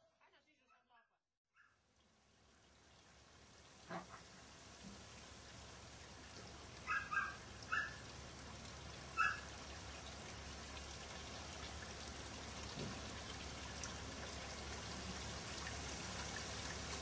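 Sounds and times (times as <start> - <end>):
puppy yelping: 6.8 - 8.0, 9.2 - 9.5.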